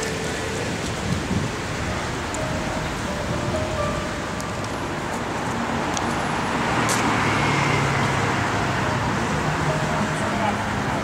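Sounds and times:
road traffic passing: 0.0 - 11.0.

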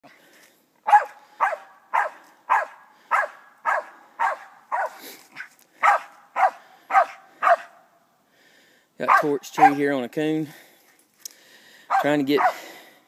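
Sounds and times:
dog barking rhythmically: 0.9 - 5.0, 5.8 - 7.8, 9.1 - 9.8, 11.9 - 12.7.

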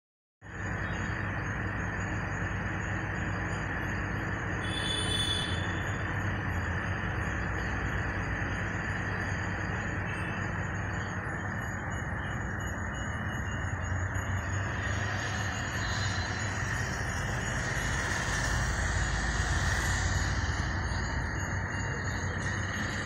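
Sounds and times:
low mechanical hum: 0.5 - 23.0
even rushing noise: 14.2 - 23.0.

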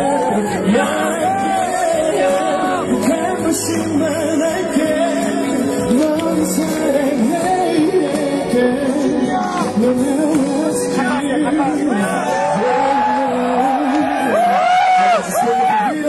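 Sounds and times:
live pop song with singing: 0.0 - 16.0.

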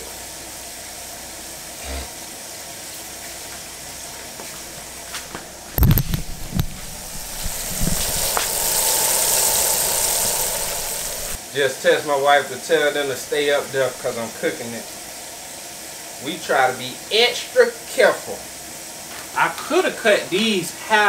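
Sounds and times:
fish sizzling in hot oil: 4.6 - 11.5.

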